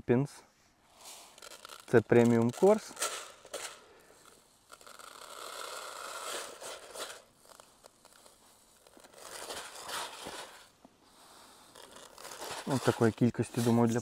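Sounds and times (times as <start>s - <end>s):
dry pellets pouring into container: 0.9s - 10.7s, 11.3s - 14.0s.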